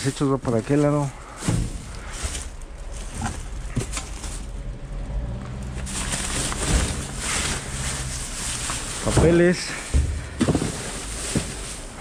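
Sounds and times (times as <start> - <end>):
steady low hum: 0.0 - 9.1
plastic bags rustling: 0.0 - 12.0.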